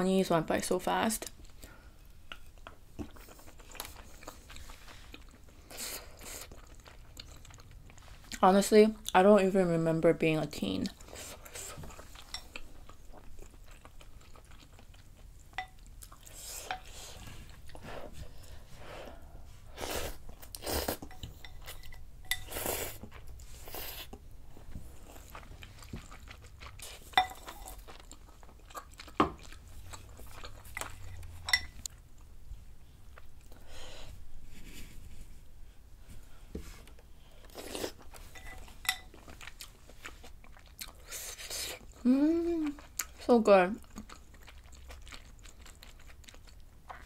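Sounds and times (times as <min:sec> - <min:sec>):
person chewing: 0:01.4 - 0:08.4, 0:10.9 - 0:18.7, 0:19.6 - 0:32.3, 0:36.8 - 0:43.2, 0:43.8 - 0:47.0.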